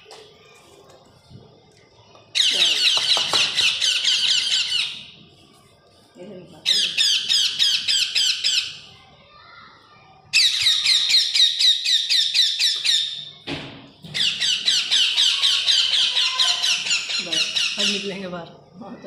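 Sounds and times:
parrot chick squawking: 2.4 - 5.1, 14.2 - 18.1.

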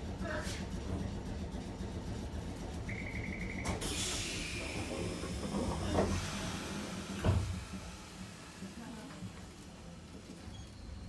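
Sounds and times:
tram electrical hum: 0.0 - 11.0
short pulsing beep: 2.9 - 3.8
thump: 7.2 - 7.6.

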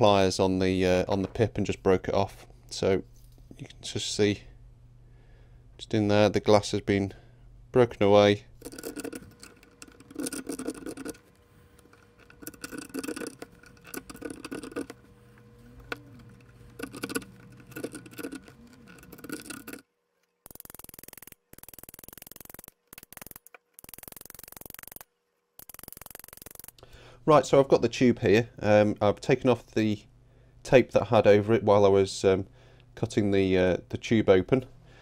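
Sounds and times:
fingernails scratching tape: 8.6 - 19.8, 20.4 - 25.0.

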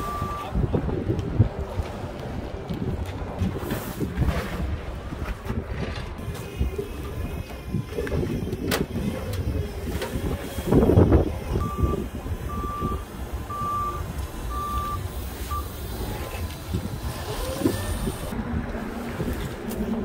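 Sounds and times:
forklift backup alarm beeps: 0.0 - 0.6, 11.5 - 16.1
wind on microphone: 0.0 - 20.0.

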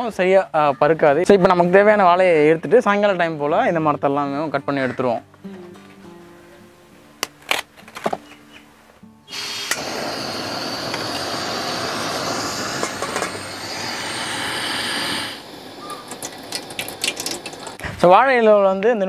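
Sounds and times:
loud rushing hiss: 9.3 - 17.8.

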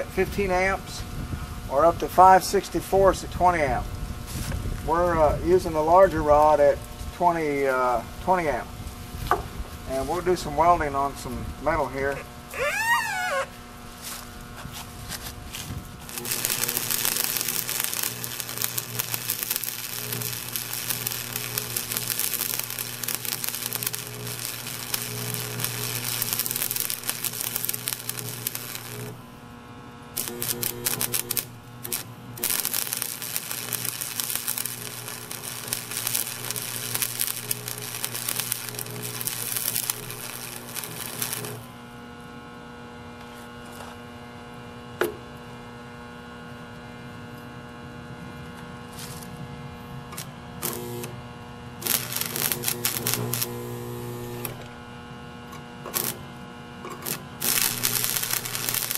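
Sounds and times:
electrical hum: 0.0 - 58.9
welding arc crackling: 16.0 - 42.1, 50.2 - 58.9.

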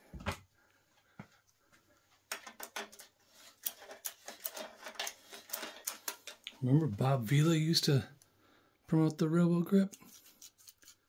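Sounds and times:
small metal clicks and scrapes: 2.3 - 6.6, 9.9 - 11.0.

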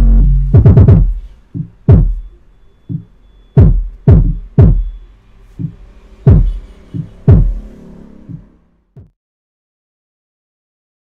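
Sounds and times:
deep pitch-dropping drum hits: 0.0 - 2.3, 2.9 - 4.9, 5.6 - 7.7
bass-heavy electronic music: 0.0 - 5.0, 5.6 - 7.7.

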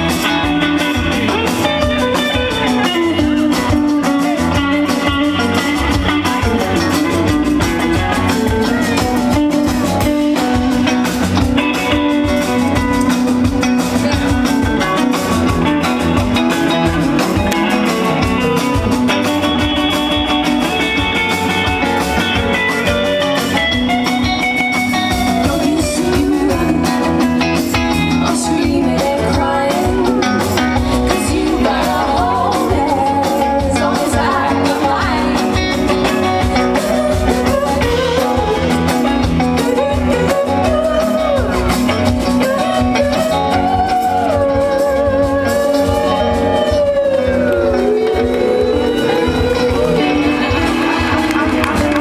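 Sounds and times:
folk-rock band playing: 0.0 - 52.0
woman singing: 25.2 - 51.1.

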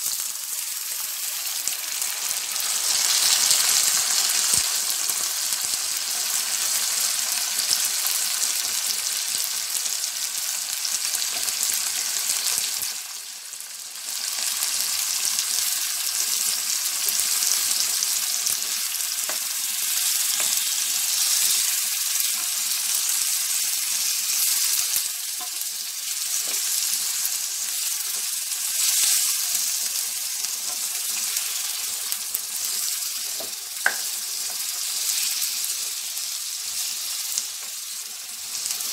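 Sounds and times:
tomatoes sizzling in pan: 0.0 - 38.9
spatula turning food: 17.0 - 38.9.

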